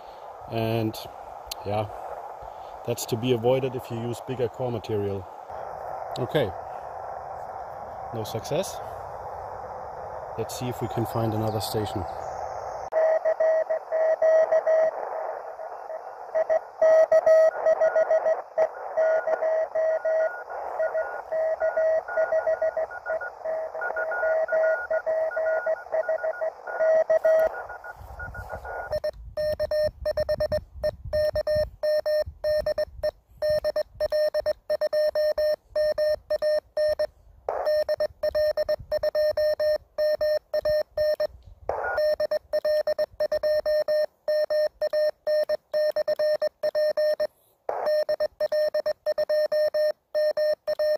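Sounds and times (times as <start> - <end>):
radio band hiss: 0.0 - 29.1, 37.0 - 38.5, 39.1 - 42.4, 47.2 - 48.2
fainter higher morse signal: 0.5 - 50.9
keyed morse sidetone: 19.0 - 41.3, 41.9 - 50.9
morse code tone: 19.0 - 41.3, 41.9 - 50.9.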